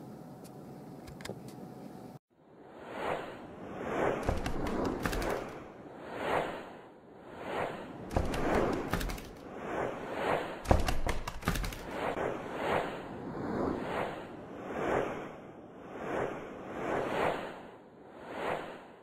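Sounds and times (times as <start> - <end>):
whoosh sound effects: 2.7 - 11.0.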